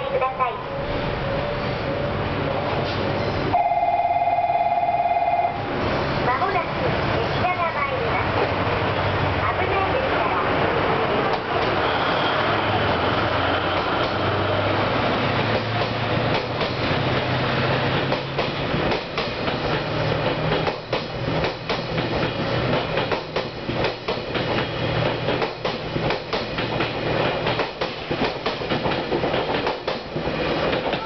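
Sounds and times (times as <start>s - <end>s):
low steady train hum: 0.0s - 31.0s
train wheels clattering over rail joints: 13.0s - 31.0s.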